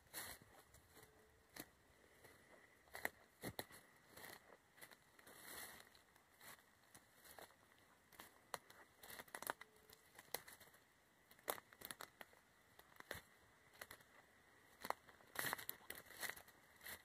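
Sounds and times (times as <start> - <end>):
footsteps through leaf litter: 0.1 - 1.1, 4.1 - 6.6, 15.3 - 17.0.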